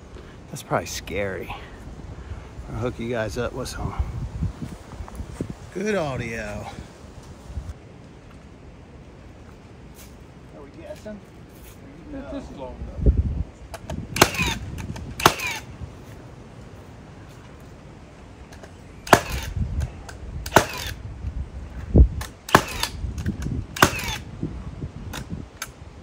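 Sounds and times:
cordless power tool bursts on wood: 0:14.1 - 0:14.6, 0:15.2 - 0:15.7, 0:20.5 - 0:21.0, 0:22.5 - 0:24.3.

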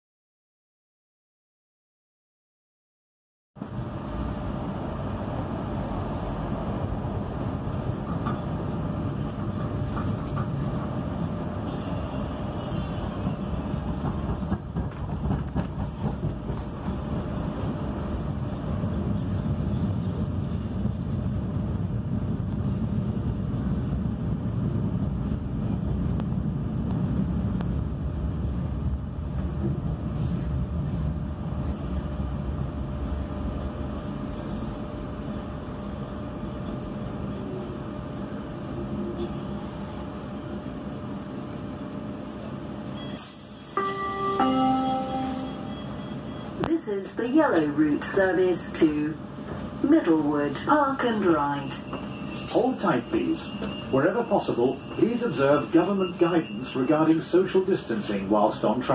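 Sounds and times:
tram rumbling on rails: 0:03.6 - 0:58.9
knocks: 0:13.9 - 0:17.0.

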